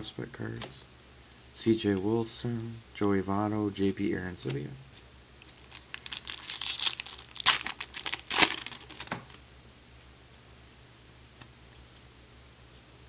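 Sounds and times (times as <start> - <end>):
foil wrapper tearing and crinkling: 5.4 - 9.4.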